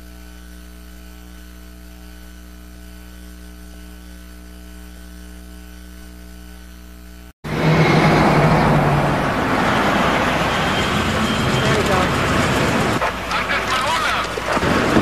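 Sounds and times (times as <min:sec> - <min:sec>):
electrical mains hum: 0:00.0 - 0:07.3.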